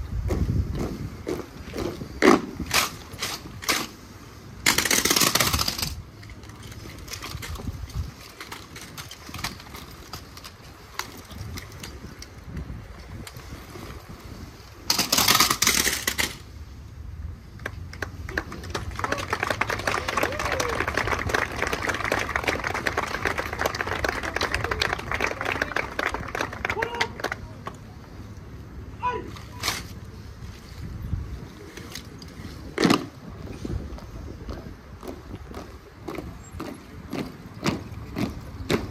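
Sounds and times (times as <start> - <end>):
boots stamping on cobblestones: 33.9 - 38.9.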